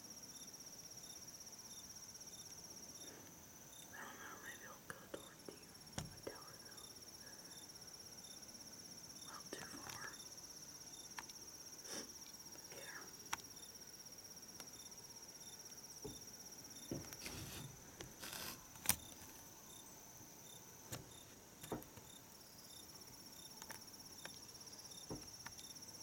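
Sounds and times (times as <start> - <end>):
insects trilling: 0.0 - 26.0.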